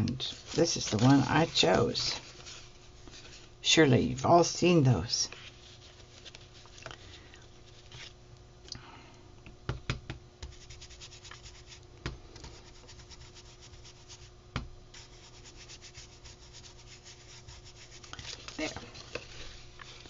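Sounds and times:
ink applicator rubbing strokes: 15.0s - 18.2s.

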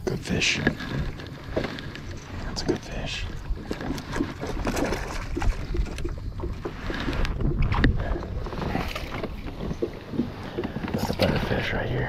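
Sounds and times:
water splashing around a kayak: 0.0s - 12.0s
wind rumble on microphone: 0.0s - 12.0s.

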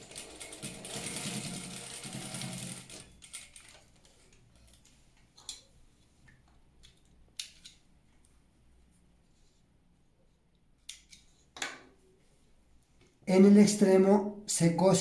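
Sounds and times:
sewing machine stitching: 0.0s - 3.8s.

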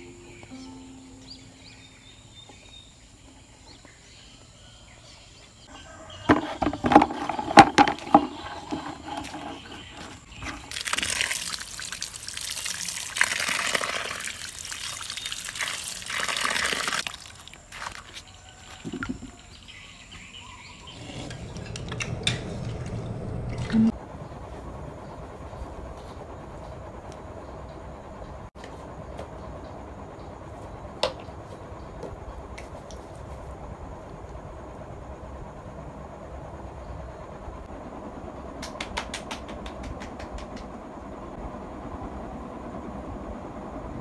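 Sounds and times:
sharp clattering knocks: 6.3s - 9.9s
water splashing on feet and ground: 10.6s - 18.3s.

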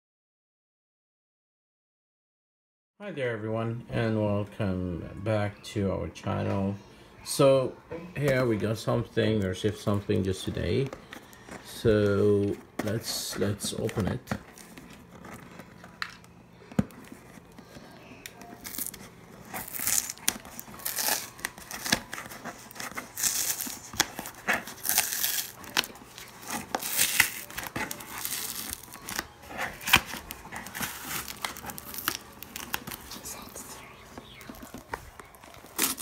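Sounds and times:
tape crinkling and clicks: 10.6s - 36.0s
packing tape tearing: 16.9s - 33.6s, 34.4s - 36.0s.

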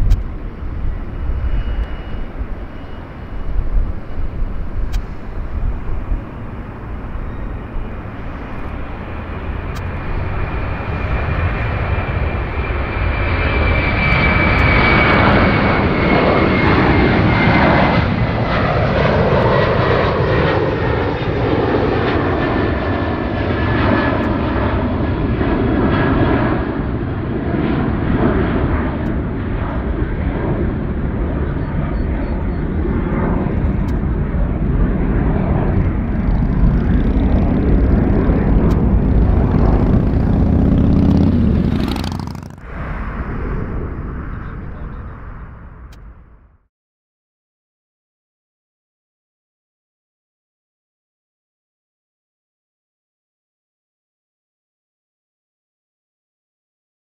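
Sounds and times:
jet engines roaring: 0.0s - 46.6s
high engine whine: 0.0s - 46.7s.

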